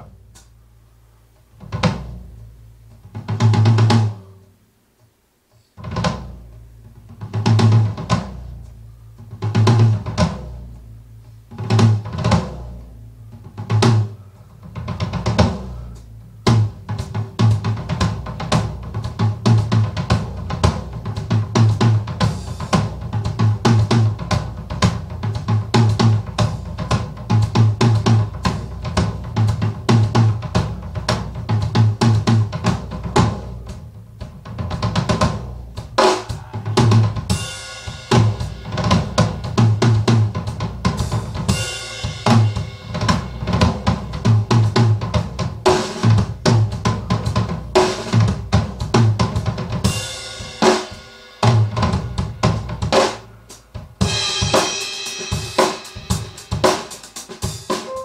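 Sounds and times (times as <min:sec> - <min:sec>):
drum beat with snare and cymbal: 0:01.6 - 0:04.4, 0:05.6 - 0:58.0
tom and bass drum strikes: 0:16.5 - 0:58.0.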